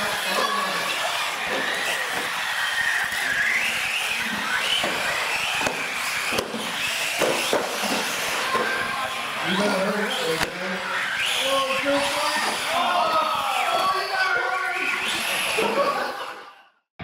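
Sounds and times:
toy truck motors whining: 0:00.0 - 0:16.6
sharp knocks: 0:07.2 - 0:08.6.

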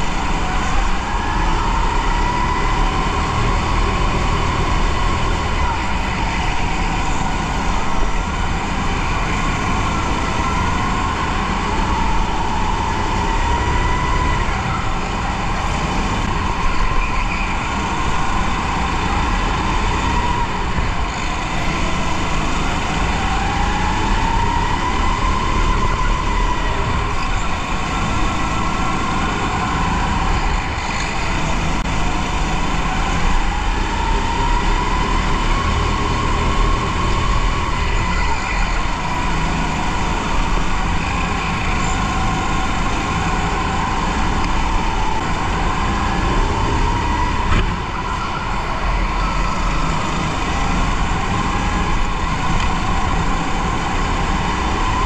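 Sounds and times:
drivetrain and tyre noise: 0:00.0 - 0:55.0.

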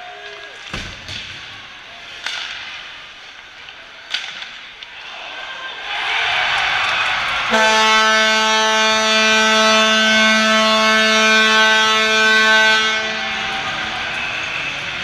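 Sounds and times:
crowd noise: 0:00.0 - 0:15.0
arena horn blast: 0:07.5 - 0:13.9.

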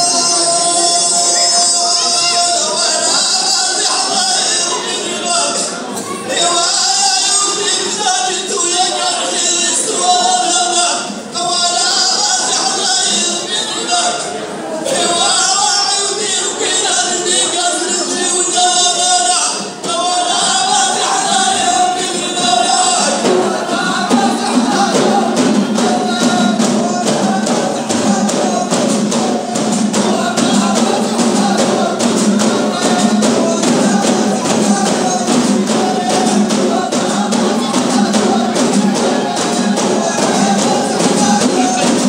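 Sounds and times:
frame drums fast rhythm: 0:00.0 - 0:42.0
group singing long held notes: 0:00.0 - 0:42.0
low group chanting: 0:19.7 - 0:42.0.

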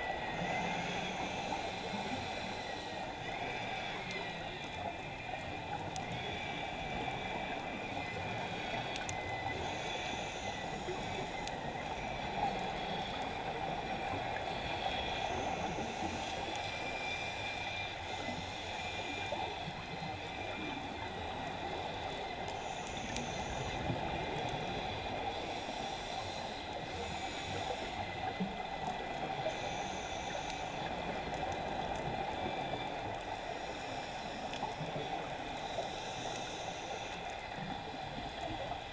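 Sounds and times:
rushing water underwater: 0:00.0 - 0:38.9
scuba regulator hiss: 0:00.4 - 0:04.6, 0:14.4 - 0:19.2, 0:24.8 - 0:28.4, 0:33.5 - 0:37.2.

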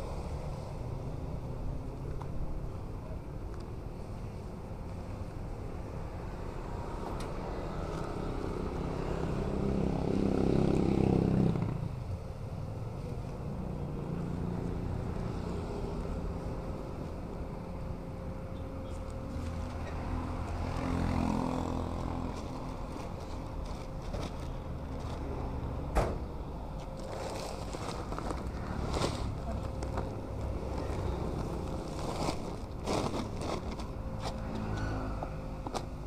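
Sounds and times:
traffic rumble: 0:00.0 - 0:36.0.

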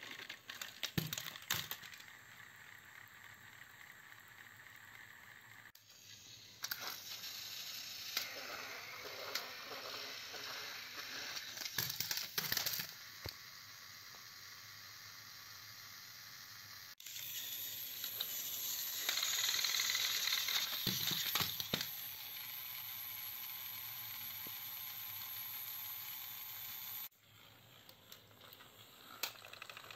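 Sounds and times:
toy trains dropping onto rug: 0:00.0 - 0:02.0, 0:20.5 - 0:21.9
toy train motors whirring: 0:00.0 - 0:29.9.

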